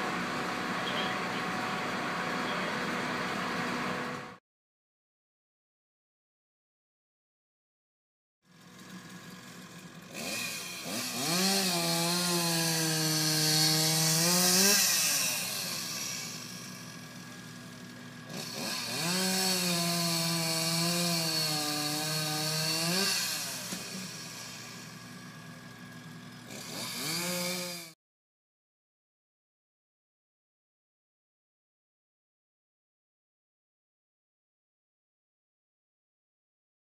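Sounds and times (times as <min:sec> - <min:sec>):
chainsaw cutting wood: 0:08.5 - 0:28.0.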